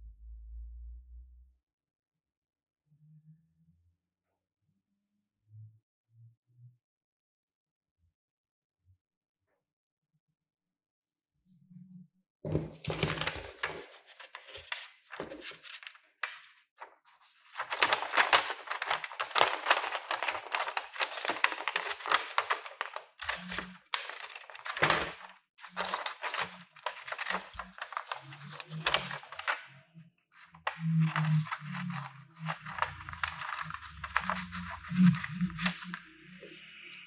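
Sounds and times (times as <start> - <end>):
paper rustling: 12.5 - 29.6, 30.4 - 36.0
scissors cutting paper: 17.3 - 29.3, 31.0 - 36.0.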